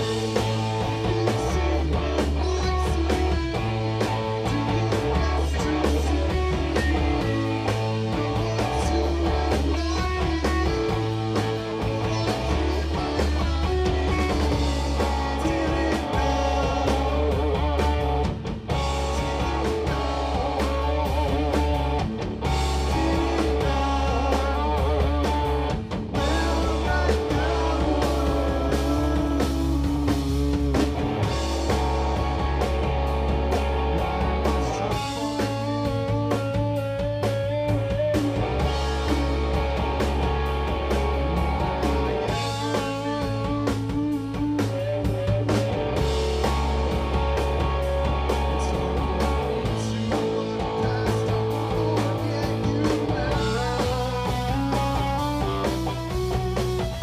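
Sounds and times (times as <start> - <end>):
live rock band: 0.0 - 57.0.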